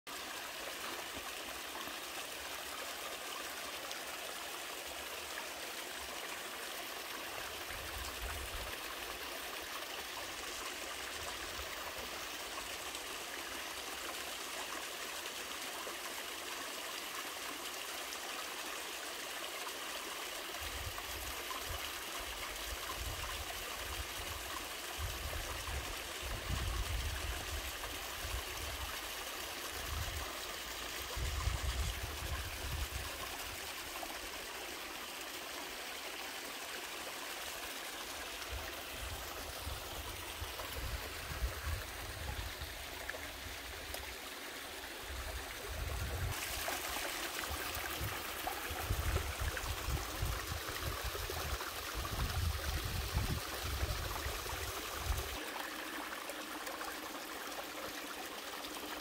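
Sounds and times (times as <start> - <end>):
stream trickling over rocks: 0.1 - 59.0.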